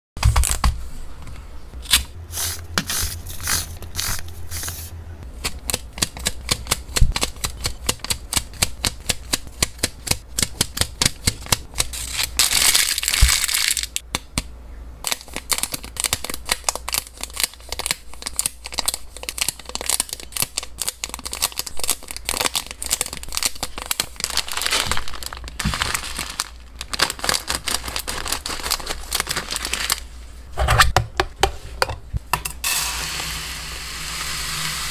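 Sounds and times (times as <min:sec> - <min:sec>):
plastic packaging rustling: 0:11.9 - 0:14.0, 0:15.1 - 0:30.4
scissors cutting plastic bag: 0:15.1 - 0:30.0.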